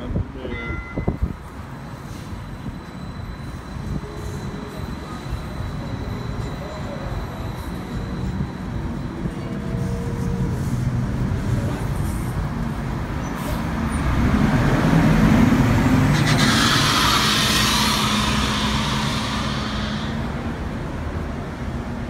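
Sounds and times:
bus engine rumble: 0:00.0 - 0:22.0
air brake hiss: 0:16.1 - 0:20.8.

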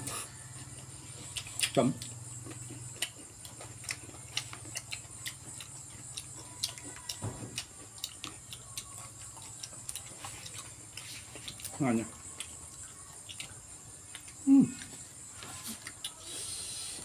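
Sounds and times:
wet chewing smacks: 0:01.2 - 0:11.8.

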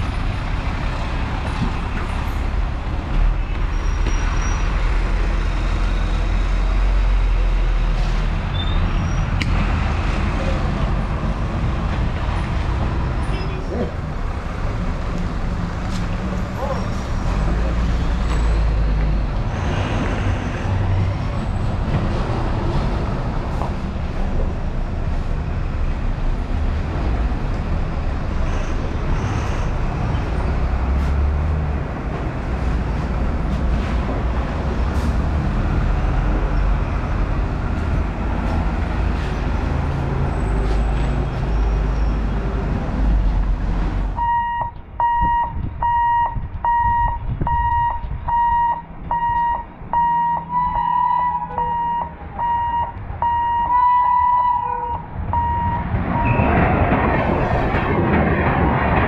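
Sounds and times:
traffic noise: 0:00.0 - 0:59.0
truck engines rumbling: 0:00.0 - 0:59.0
repeating electronic beep: 0:44.2 - 0:54.6.

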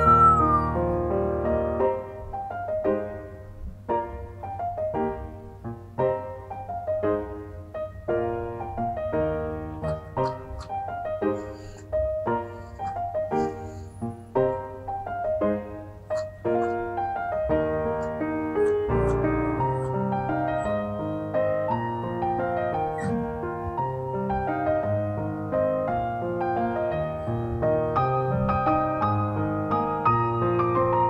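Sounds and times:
gentle slow piano music: 0:00.0 - 0:31.0.

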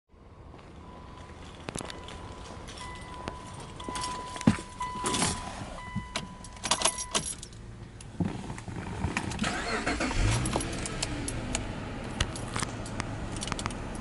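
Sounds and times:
electronic warning chime: 0:00.8 - 0:07.2
car key jangling in ignition: 0:01.2 - 0:14.0
engine starter whirring: 0:09.3 - 0:11.5.

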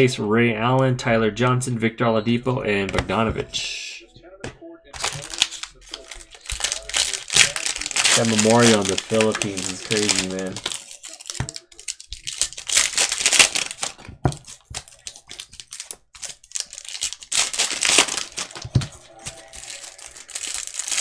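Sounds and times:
cellophane wrapper crinkling and tearing: 0:05.0 - 0:21.0.

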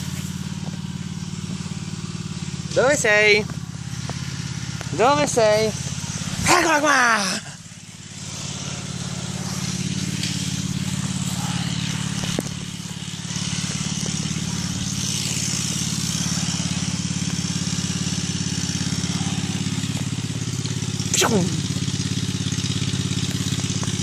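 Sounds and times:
engine running steadily: 0:00.0 - 0:24.0.

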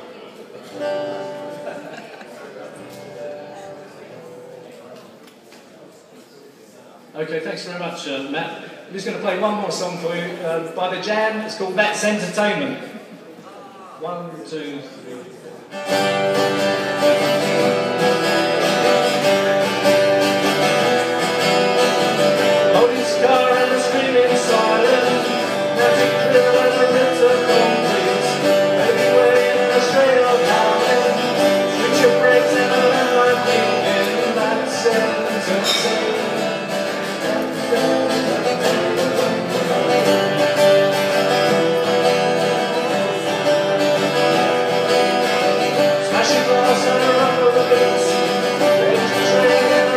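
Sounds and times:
acoustic guitars playing: 0:00.0 - 0:05.2, 0:15.6 - 0:49.9.

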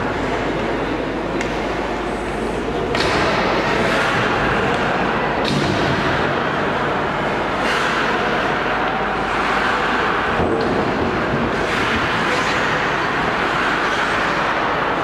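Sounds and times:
skate blades scraping ice: 0:03.7 - 0:05.0, 0:07.2 - 0:15.0
rink noise: 0:05.7 - 0:15.0.

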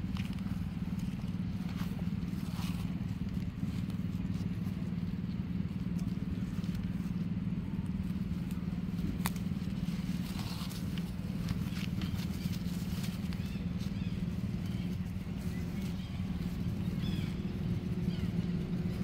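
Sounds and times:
low motor hum: 0:00.0 - 0:19.0.

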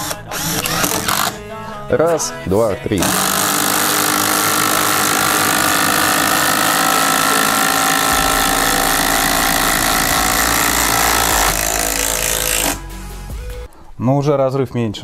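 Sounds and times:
impact drivers hammering: 0:00.0 - 0:01.4, 0:03.0 - 0:12.8
deep hum: 0:03.0 - 0:13.6.

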